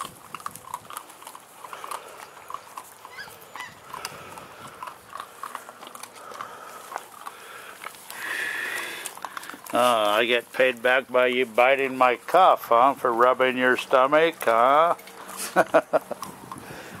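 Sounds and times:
puppies crunching kibble: 0.0s - 17.0s
rustle: 0.0s - 17.0s
puppy squeaks and snuffles: 3.0s - 3.9s.

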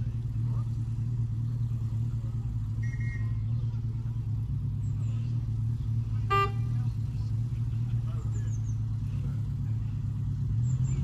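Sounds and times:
locomotive engine humming: 0.0s - 11.0s
short horn toot: 6.3s - 6.8s.

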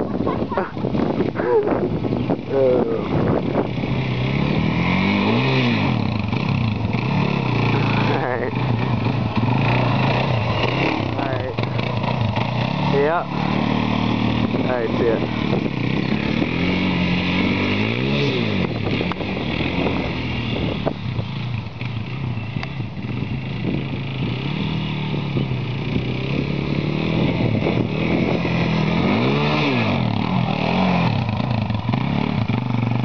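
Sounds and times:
quad engine revving: 0.0s - 33.0s.

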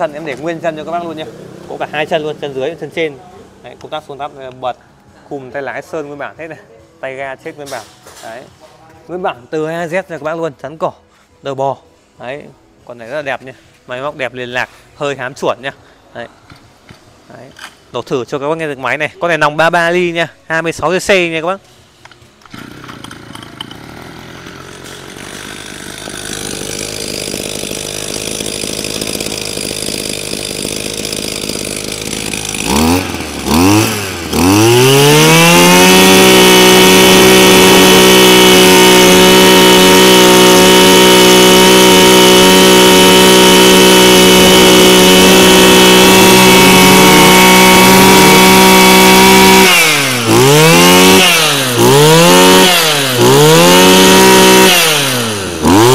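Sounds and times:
brush cutter engine revving: 0.0s - 3.2s, 22.4s - 55.9s.

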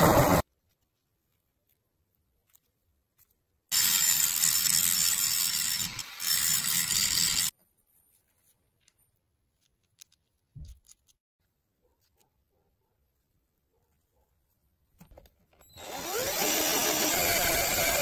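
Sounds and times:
loud harsh rasping: 15.8s - 18.0s.

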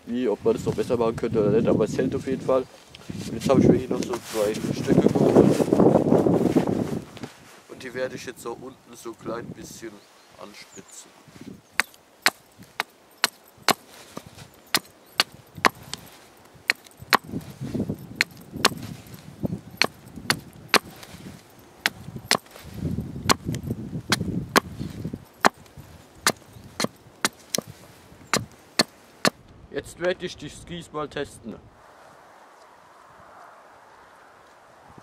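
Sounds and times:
hatchet chopping wood: 11.8s - 16.1s, 16.7s - 17.4s, 18.2s - 18.9s, 19.8s - 21.1s, 21.8s - 22.6s, 23.2s - 24.8s, 25.4s - 29.4s.

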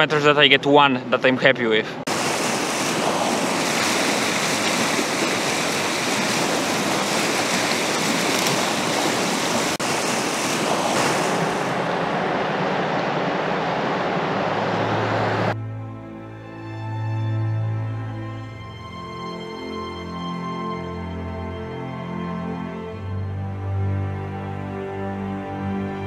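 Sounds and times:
whitewater rapids rushing: 2.1s - 15.6s.

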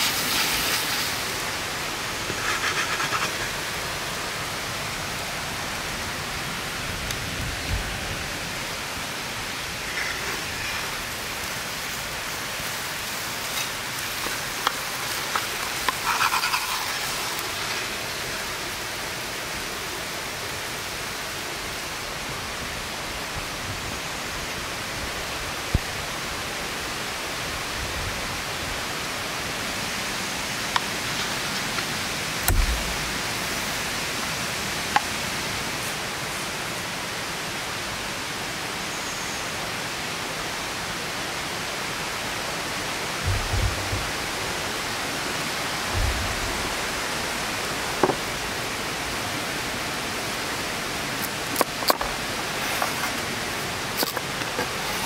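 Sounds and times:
wood fire hissing: 0.0s - 21.8s, 41.9s - 55.0s.

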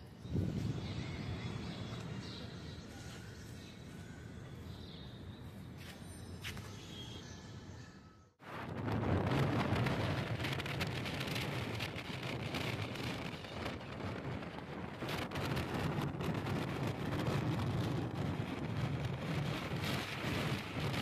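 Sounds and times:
wind buffeting microphone: 0.0s - 3.4s, 8.4s - 21.0s
low rumble of vehicle and road: 0.0s - 21.0s.

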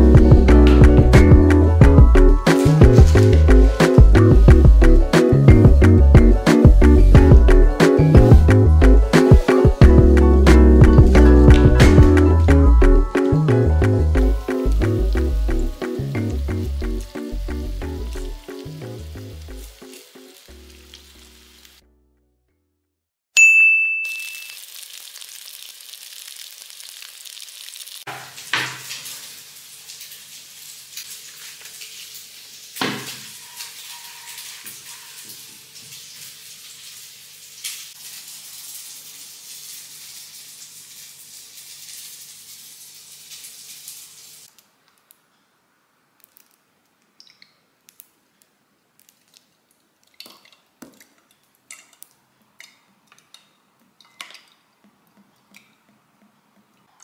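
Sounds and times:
steady cooking hiss: 2.4s - 6.7s, 7.8s - 12.5s, 13.1s - 21.8s, 24.2s - 44.6s
water dripping: 10.9s - 21.8s, 24.1s - 45.2s, 46.2s - 48.2s, 49.0s - 57.0s
dishes and utensils clattering: 32.8s - 35.6s.

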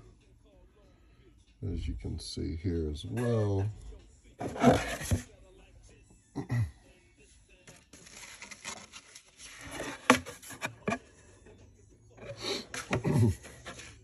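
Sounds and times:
rustling cardboard and paper: 4.4s - 5.4s, 7.6s - 11.2s, 12.6s - 14.0s.

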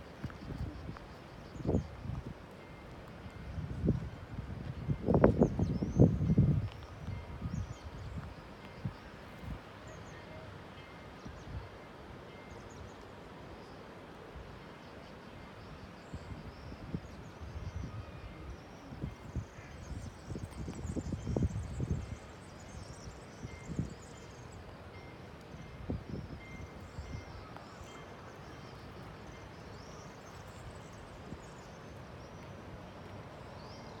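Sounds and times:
wind rumbling on microphone: 0.0s - 9.6s, 16.2s - 24.0s, 25.6s - 27.4s.

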